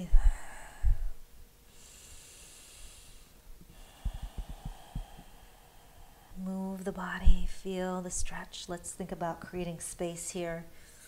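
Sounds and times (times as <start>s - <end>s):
dull low thumps: 0.0s - 1.3s, 3.9s - 5.3s, 7.1s - 7.6s
woman breathing deeply: 0.0s - 6.5s.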